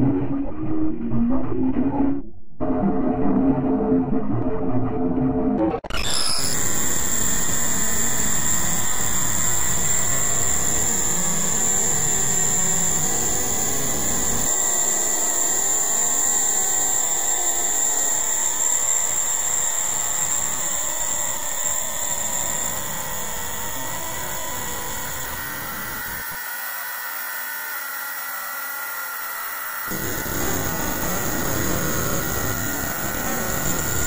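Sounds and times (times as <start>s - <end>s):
distorted noisy hiss: 29.9s - 34.0s
high thin whine: 29.9s - 34.0s.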